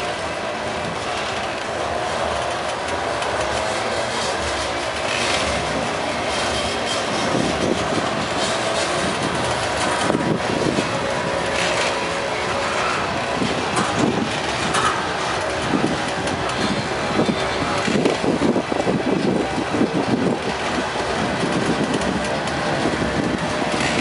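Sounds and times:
train wheels rumbling on rails: 0.0s - 24.0s
wheels clacking over rail joints: 0.0s - 24.0s.

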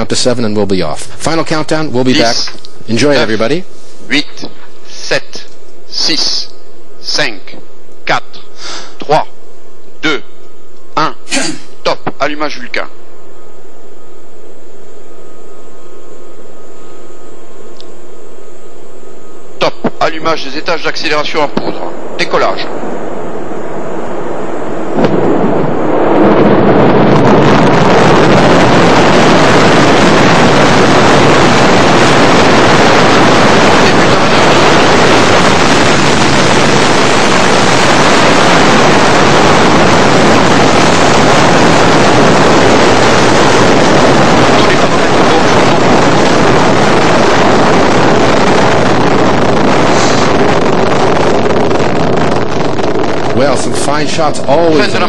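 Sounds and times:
rocket engines roaring: 0.0s - 55.0s.

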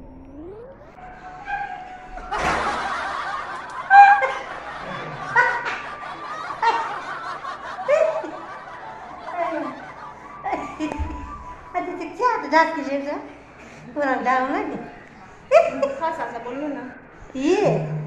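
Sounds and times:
women laughing: 1.4s - 12.0s, 15.5s - 16.3s.

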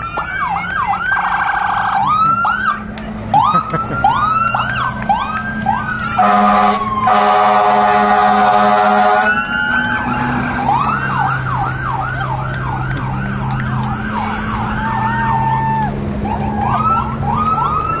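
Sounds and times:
fire truck siren wailing and yelping: 0.0s - 18.0s
truck engines running: 0.0s - 18.0s
fire truck horn blast: 6.2s - 9.4s.

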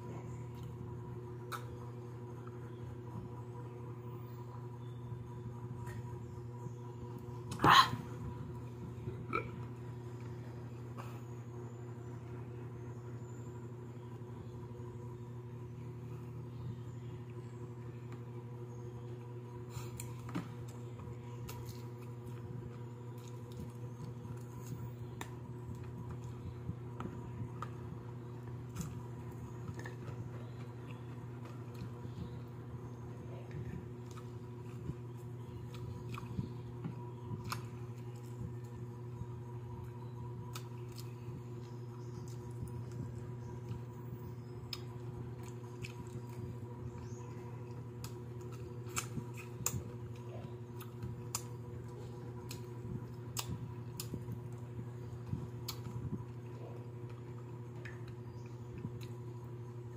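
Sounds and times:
soft chewing and squishing: 0.0s - 3.7s, 15.6s - 59.9s
steady low hum: 0.0s - 59.9s.

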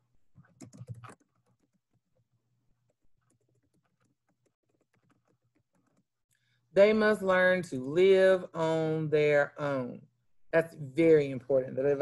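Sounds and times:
computer keyboard typing: 0.4s - 2.0s, 3.2s - 6.1s.

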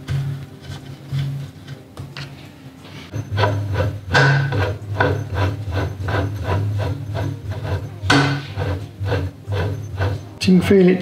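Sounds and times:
steering box rubbing rasp: 3.1s - 10.4s.

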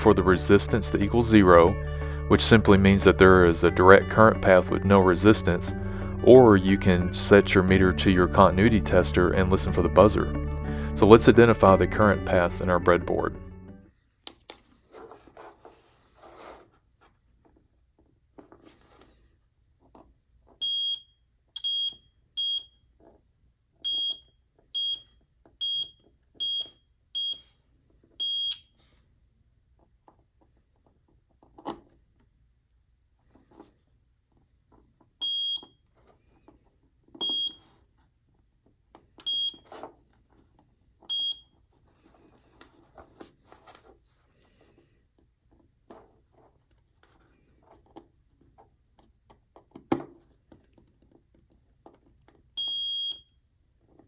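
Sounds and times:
multimeter continuity beeps: 20.6s - 22.8s, 23.9s - 27.4s, 28.2s - 28.7s, 35.2s - 35.7s, 37.2s - 37.6s, 39.2s - 39.6s, 41.1s - 41.5s, 52.6s - 53.3s.

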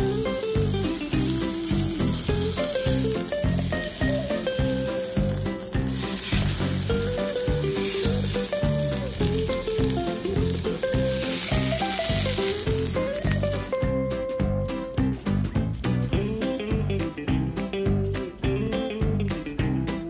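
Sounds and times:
fish sizzling in a frying pan: 0.0s - 13.9s
background music with bass: 0.0s - 20.0s.

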